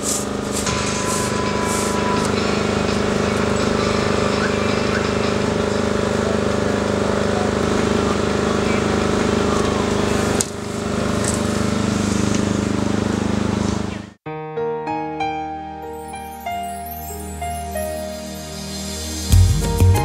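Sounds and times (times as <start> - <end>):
machine hum: 0.0 - 14.1.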